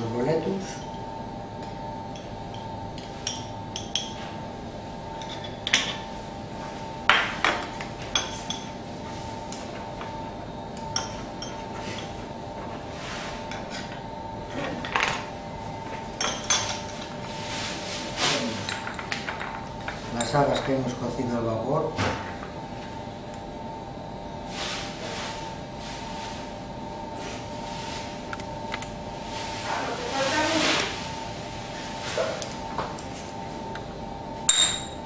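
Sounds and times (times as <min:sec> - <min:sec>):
utensils clinking against plate: 0:02.1 - 0:04.3, 0:05.2 - 0:06.0, 0:07.1 - 0:08.8, 0:10.8 - 0:12.2, 0:16.2 - 0:17.1, 0:18.3 - 0:20.8.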